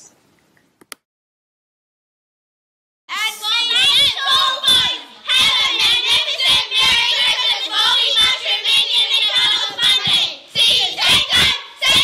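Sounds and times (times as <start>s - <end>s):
children singing: 3.4s - 12.0s.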